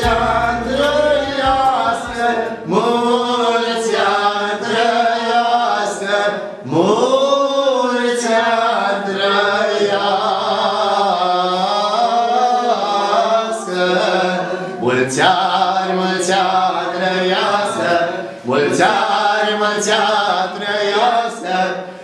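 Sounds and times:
steady low drone: 0.0 - 2.2
person singing slowly: 0.0 - 3.1.

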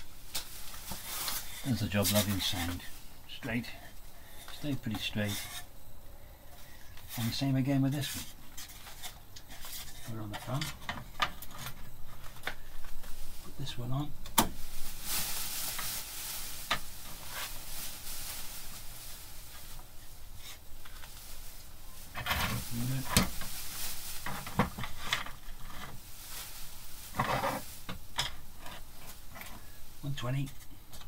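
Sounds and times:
paper rustling and sliding: 0.4 - 3.6, 14.7 - 29.8.

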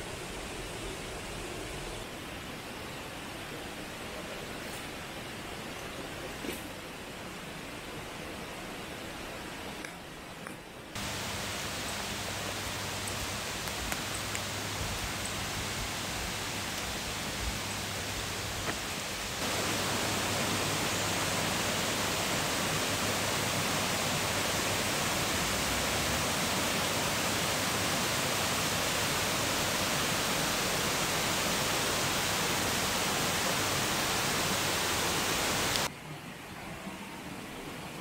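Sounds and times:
creek water rushing: 11.0 - 36.0.

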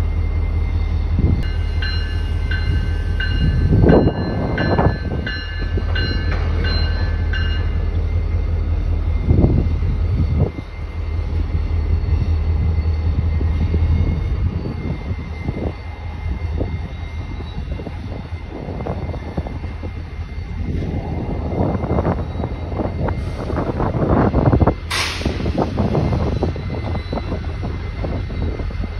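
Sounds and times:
locomotive engines rumbling: 0.0 - 28.9.

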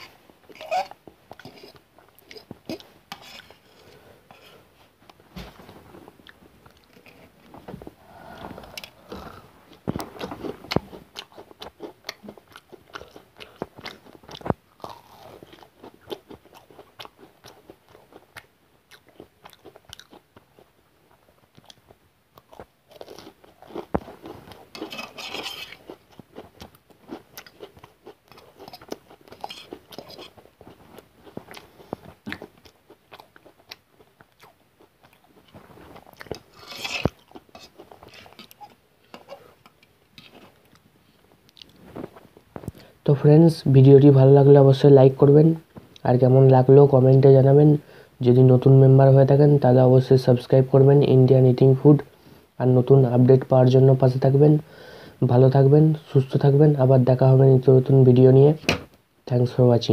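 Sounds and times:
crunching fried food: 9.8 - 39.3.

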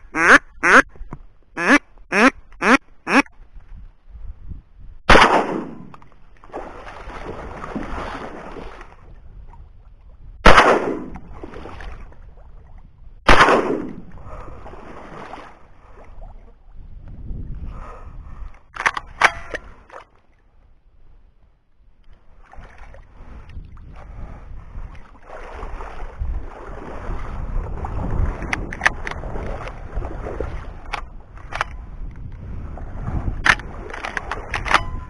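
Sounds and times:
duck quacking: 0.0 - 0.9, 1.6 - 3.3
shotgun firing: 5.1 - 5.9, 10.4 - 11.2, 13.3 - 14.0.

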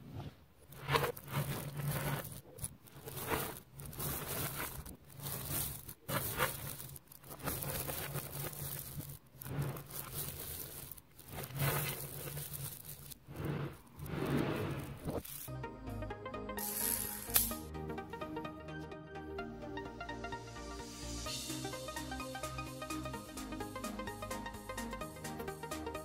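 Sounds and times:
magnet balls clicking rattle: 0.6 - 15.6, 16.6 - 17.7, 21.6 - 26.0.

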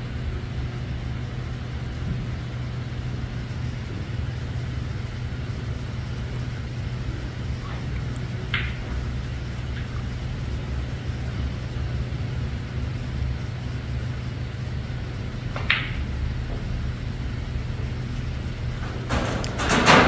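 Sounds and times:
low hum: 0.0 - 20.0
cue striking ball click: 8.0 - 9.0, 15.5 - 16.1.

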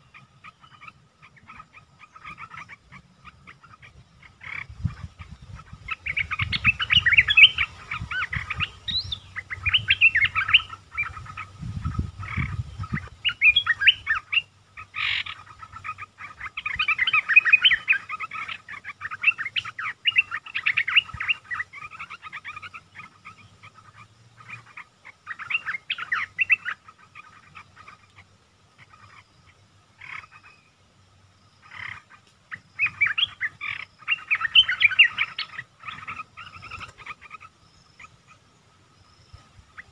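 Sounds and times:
birds chattering song: 0.0 - 39.9.

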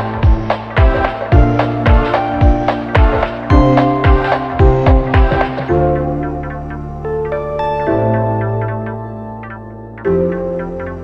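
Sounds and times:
sustained chords: 0.0 - 11.0
drum beat: 0.2 - 5.7.

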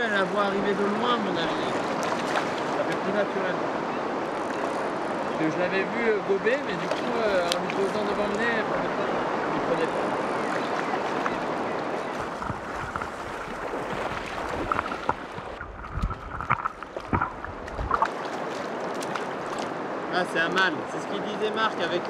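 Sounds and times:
river water running: 0.0 - 22.0
wind rumbling on microphone: 6.8 - 20.0.

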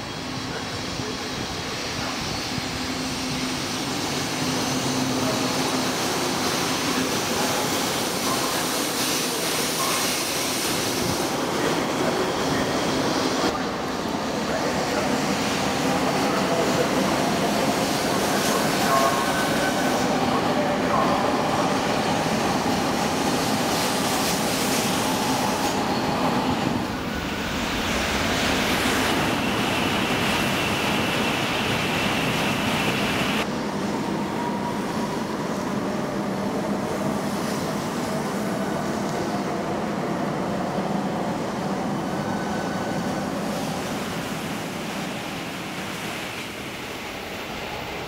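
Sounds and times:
train rumbling: 0.0 - 48.0
train whine: 0.0 - 48.0.

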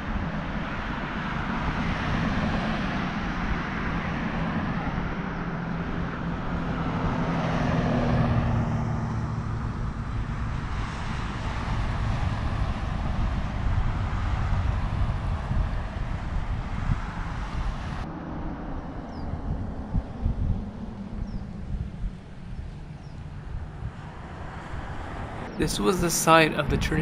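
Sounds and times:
cars passing on road: 0.0 - 27.0.

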